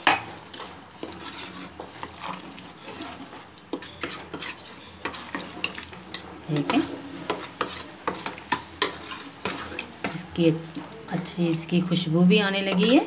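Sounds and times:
spoon scraping and clinking on pot: 0.0 - 10.3
spoon stirring chickpeas in gravy: 0.0 - 13.0.

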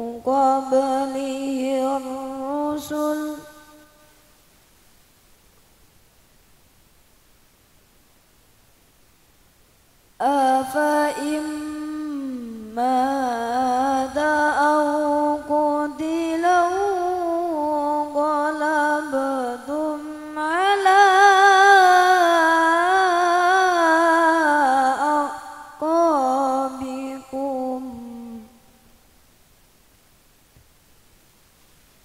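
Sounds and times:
person reciting melodically: 0.0 - 3.7, 10.2 - 28.6.

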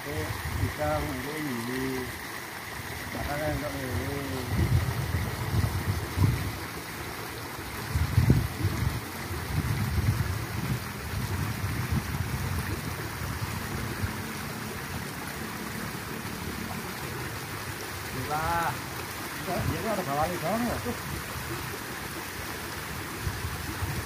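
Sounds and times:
outdoor hiss: 0.0 - 4.7, 14.2 - 22.8
wind buffeting microphone: 3.4 - 6.8, 7.7 - 14.2.

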